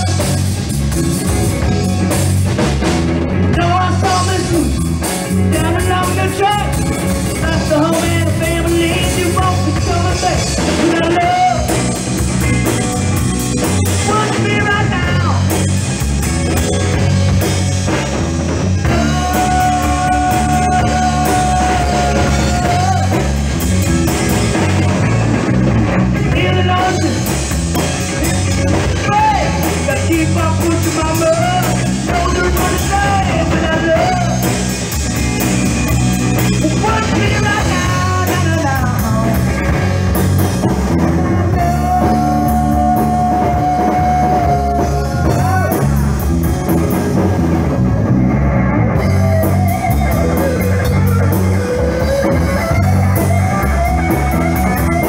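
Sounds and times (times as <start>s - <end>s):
rock band playing: 0.0s - 55.0s
man singing: 3.4s - 12.0s, 13.9s - 15.6s, 18.8s - 23.6s, 26.2s - 27.4s, 28.7s - 34.7s, 36.4s - 39.9s, 41.4s - 46.2s.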